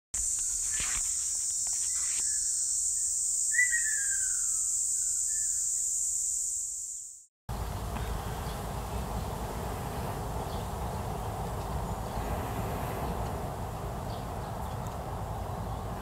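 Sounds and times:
high insect-like buzz: 0:00.2 - 0:08.6
outdoor background noise: 0:00.2 - 0:16.0
bird calls: 0:00.4 - 0:06.0, 0:07.5 - 0:12.4.

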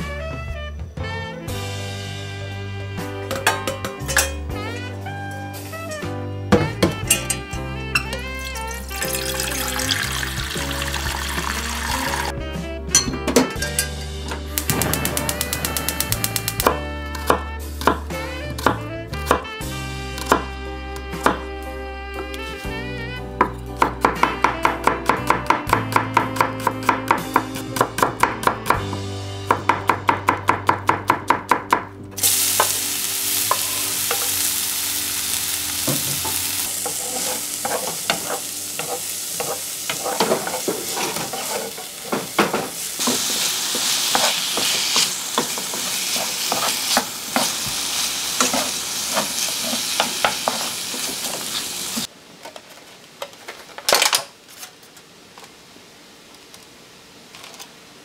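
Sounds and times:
garlic sizzling in a frying pan: 0:08.4 - 0:12.3, 0:32.2 - 0:52.1
wooden spatula scraping pan: 0:36.0 - 0:47.6, 0:48.4 - 0:51.4.

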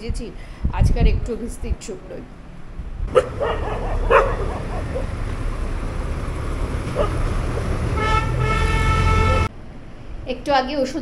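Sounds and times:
traffic rumble of engines and tyres: 0:00.0 - 0:11.0
vehicle horn blast: 0:07.9 - 0:09.5.

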